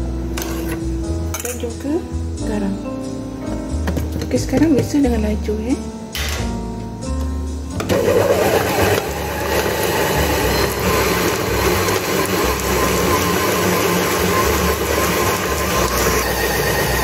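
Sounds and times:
stand mixer kneading dough: 0:07.9 - 0:17.0.

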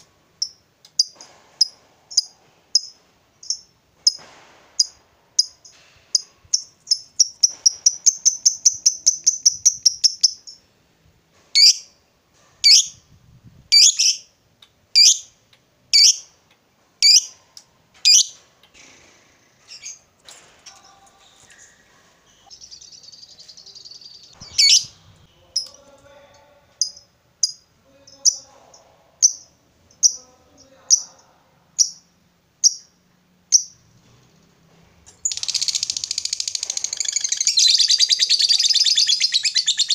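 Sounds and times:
lovebird chirping: 0:00.0 - 0:04.2, 0:04.8 - 0:10.7, 0:11.6 - 0:12.0, 0:12.6 - 0:13.0, 0:13.7 - 0:14.3, 0:15.0 - 0:16.3, 0:17.0 - 0:17.4, 0:18.0 - 0:18.4, 0:20.8 - 0:25.8, 0:26.8 - 0:33.8, 0:35.2 - 0:39.9.

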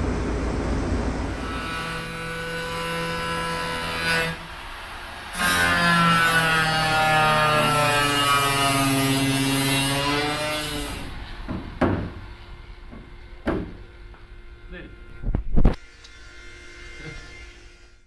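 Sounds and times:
power tool on sheet metal: 0:01.2 - 0:11.2, 0:15.6 - 0:18.0
sharp knocks: 0:11.5 - 0:12.3, 0:12.9 - 0:13.9.

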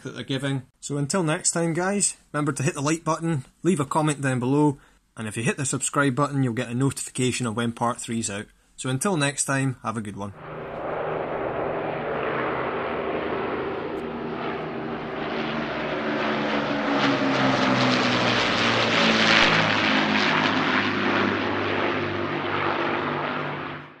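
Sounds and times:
propeller aircraft engines droning: 0:10.3 - 0:24.0.

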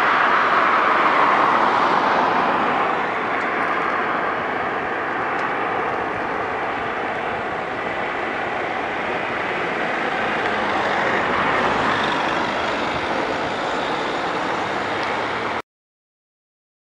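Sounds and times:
helicopter rotor and turbine: 0:02.6 - 0:15.6.

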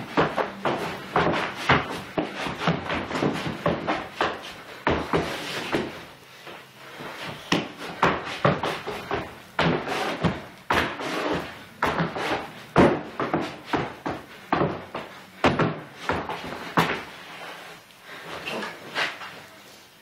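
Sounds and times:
shoes stomping on hard floor: 0:00.0 - 0:06.1, 0:07.2 - 0:17.1.

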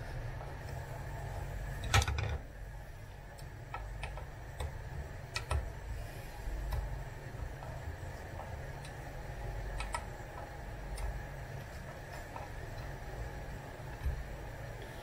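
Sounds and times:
steady low hum: 0:00.0 - 0:15.0
small clicks and ticks: 0:03.3 - 0:05.8, 0:06.6 - 0:13.0.

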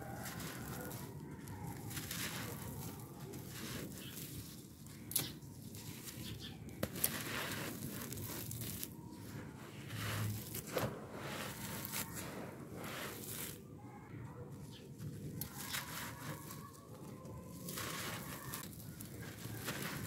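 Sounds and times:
dirt clods snapping: 0:00.0 - 0:09.0, 0:15.3 - 0:20.0
dirt crumbling in hands: 0:00.0 - 0:13.6, 0:14.7 - 0:20.0
loose dirt trickling: 0:15.3 - 0:20.0.

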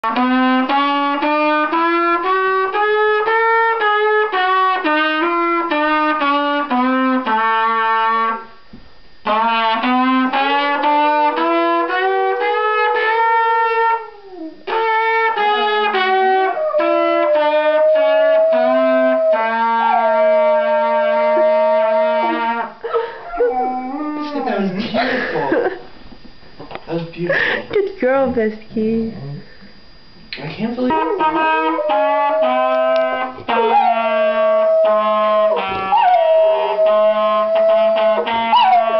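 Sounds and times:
trumpet melody: 0:00.0 - 0:08.6, 0:09.2 - 0:22.8, 0:23.4 - 0:24.7, 0:30.8 - 0:38.9
dog howling: 0:11.8 - 0:24.8, 0:30.9 - 0:38.9.

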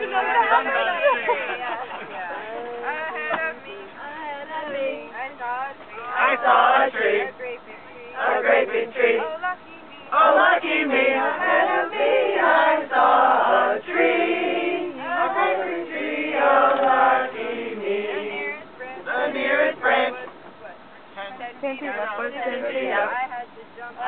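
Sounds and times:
choir singing unaccompanied: 0:00.0 - 0:20.4, 0:22.0 - 0:23.3.

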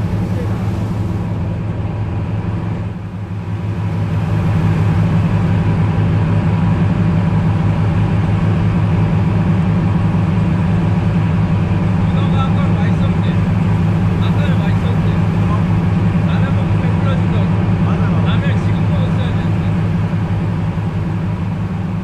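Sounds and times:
boat engine droning: 0:00.0 - 0:22.0.

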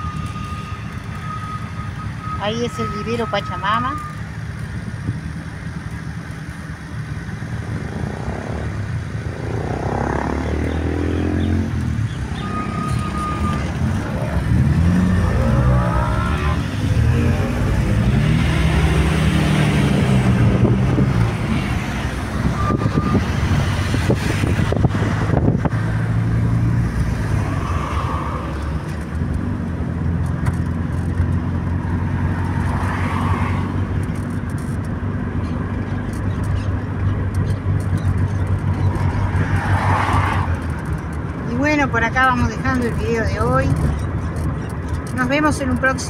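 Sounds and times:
car engine hum: 0:00.0 - 0:46.0
tyre noise on road: 0:00.0 - 0:46.0.

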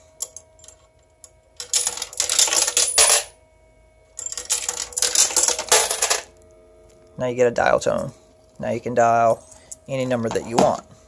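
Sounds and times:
coins clattering through pay phone: 0:01.6 - 0:03.4, 0:04.2 - 0:06.3.

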